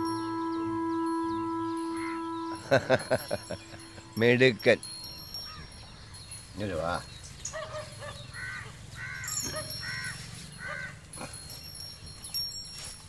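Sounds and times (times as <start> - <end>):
crow cawing: 8.3 - 11.0.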